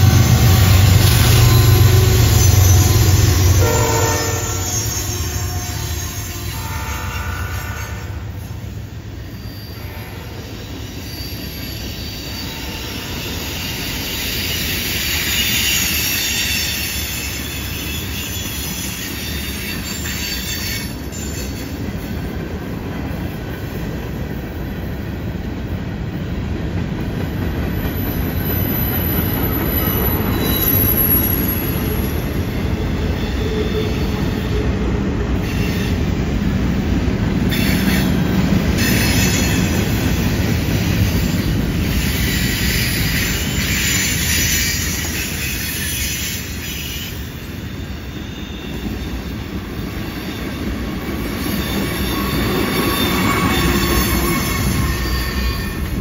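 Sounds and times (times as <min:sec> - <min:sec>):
wheel squeal: 0:00.0 - 0:06.9, 0:09.2 - 0:21.8, 0:27.8 - 0:34.5, 0:41.2 - 0:56.0
train wheels rumbling on rail: 0:00.0 - 0:56.0.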